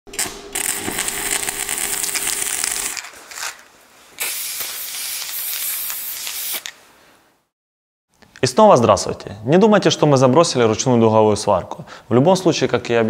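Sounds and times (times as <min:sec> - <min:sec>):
welding arc crackling: 0:00.1 - 0:03.5, 0:04.2 - 0:06.6
spray hiss: 0:04.2 - 0:06.7.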